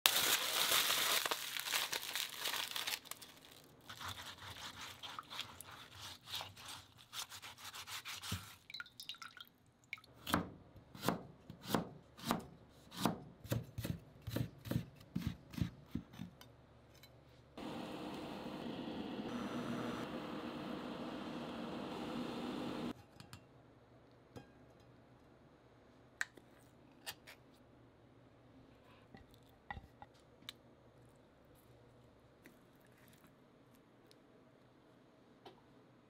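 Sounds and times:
aluminium foil crinkling: 0.1 - 7.4
foil scrubbing root in water: 3.8 - 8.7
knife chopping on cutting board: 10.3 - 16.3.

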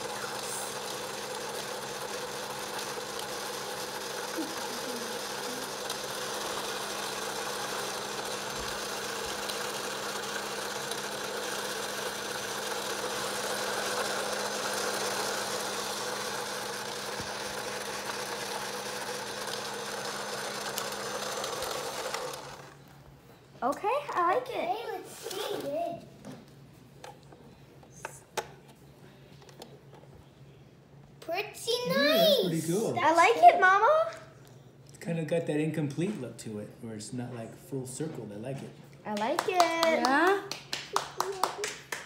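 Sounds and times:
small electric motor humming: 0.0 - 22.8.

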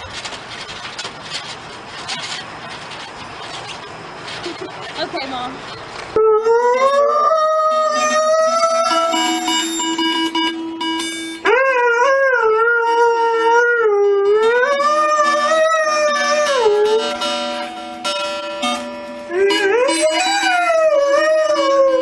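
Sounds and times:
acoustic guitar plucking: 0.9 - 22.0
dog howling: 6.1 - 9.6, 11.4 - 17.2, 19.3 - 22.0.

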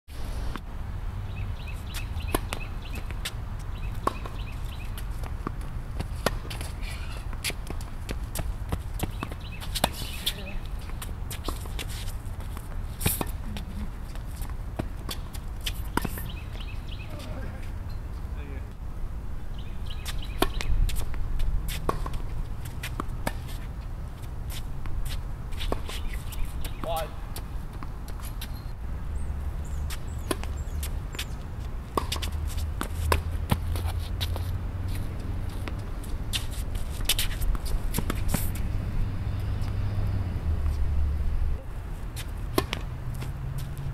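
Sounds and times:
footsteps on court: 1.8 - 17.4, 29.8 - 38.8
tennis ball bouncing: 1.8 - 17.4, 20.0 - 23.7, 29.9 - 40.8, 42.2 - 43.9
racket hitting tennis ball: 1.9 - 16.4, 20.0 - 23.7, 29.9 - 38.7, 41.6 - 43.9
racket striking tennis ball: 2.2 - 3.3, 3.9 - 4.5, 11.0 - 13.4, 20.3 - 23.6, 31.9 - 34.5, 35.6 - 38.7, 42.2 - 43.3.

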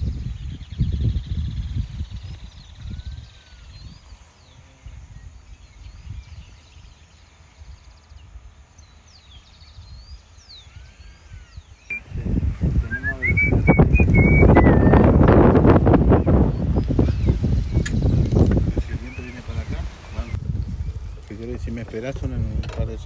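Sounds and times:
small birds chirping: 0.0 - 23.0
wind rumble on microphone: 0.0 - 23.0
whistled rising note: 12.8 - 15.1.

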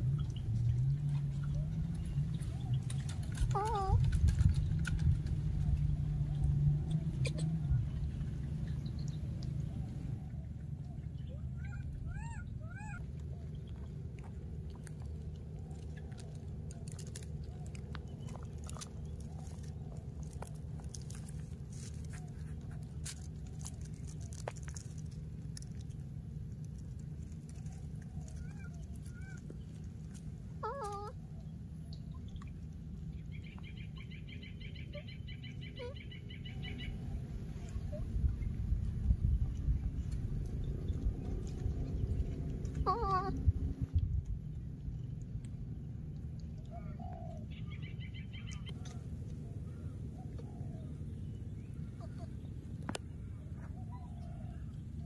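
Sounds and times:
low rumble: 0.0 - 55.0
baby monkeys squeaky calls: 3.4 - 4.0, 11.3 - 13.0, 28.3 - 29.4, 30.6 - 31.2, 33.9 - 36.9, 42.8 - 43.4.

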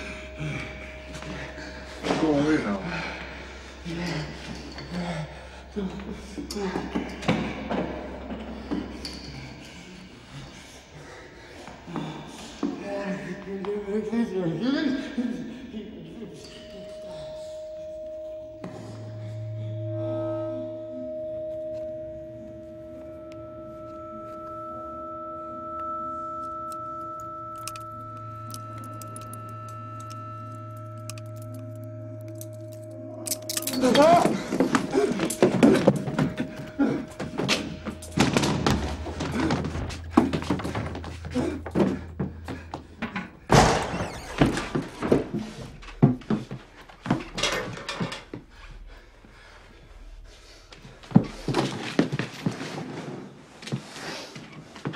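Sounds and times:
droning sustained pure tones: 0.0 - 51.5.

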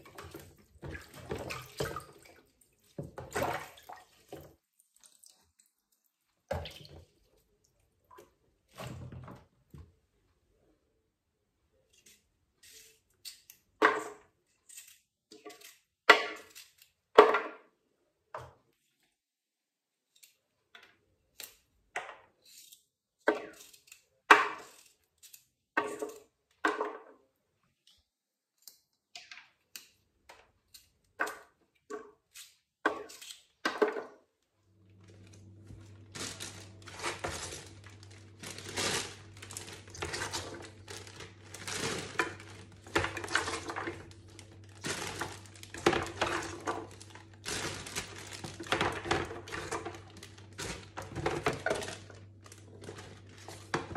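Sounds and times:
low steady hum: 34.7 - 53.9
beans rustling in plastic bag: 34.9 - 53.8.

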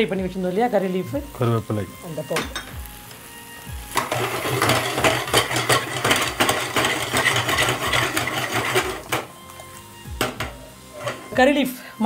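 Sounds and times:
food sizzling in a pan: 0.0 - 12.0
metal ladle scraping a pan: 3.9 - 11.4.

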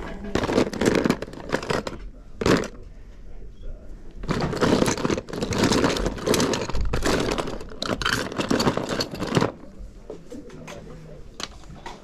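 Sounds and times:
plastic toys clattering: 0.0 - 2.9, 4.2 - 9.8.

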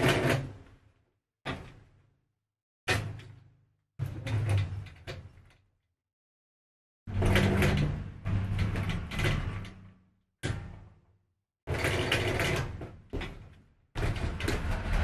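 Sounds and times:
industrial sewing machine stitching: 7.1 - 9.8, 11.7 - 12.8, 14.0 - 15.0.

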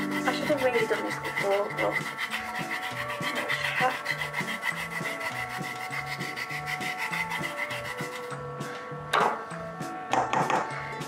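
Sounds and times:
kitchen tools rasping and rubbing: 0.0 - 8.4
background music with beat and bass: 1.5 - 11.0.

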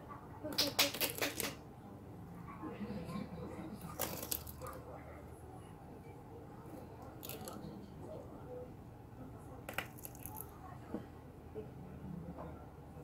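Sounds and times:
tortoise chewing crunchy vegetables: 3.7 - 4.8, 6.6 - 8.0, 9.7 - 10.6.

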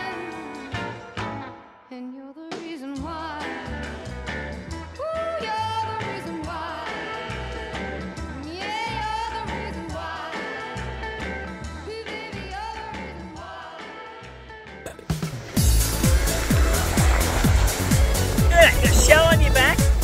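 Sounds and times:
steady bass beat: 15.6 - 20.0.

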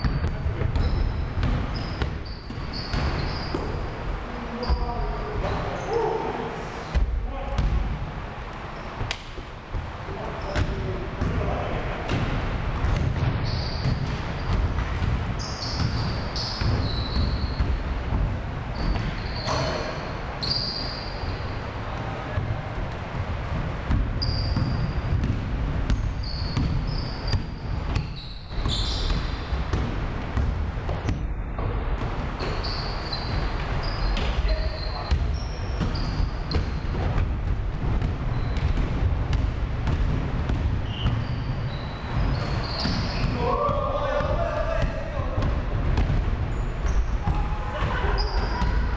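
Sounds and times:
basketball bouncing: 0.0 - 3.8, 9.0 - 21.1, 22.0 - 48.9
sneakers squeaking: 0.0 - 7.9, 8.5 - 48.9
feet thumping: 35.1 - 48.9.

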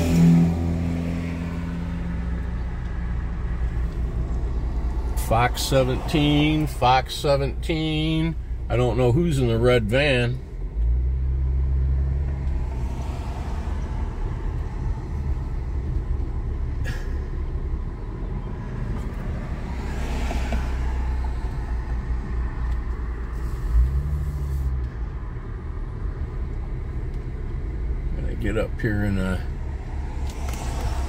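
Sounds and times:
car engine and road rumble: 0.0 - 31.0.

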